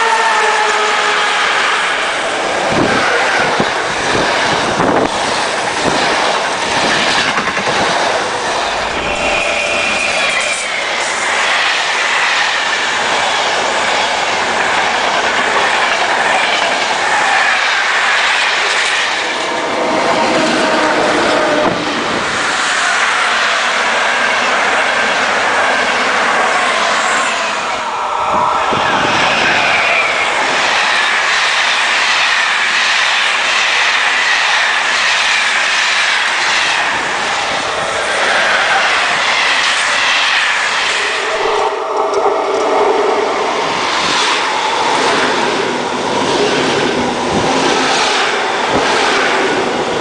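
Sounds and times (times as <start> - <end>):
train wheels clattering on rails: 2.2 - 23.8, 43.4 - 50.0.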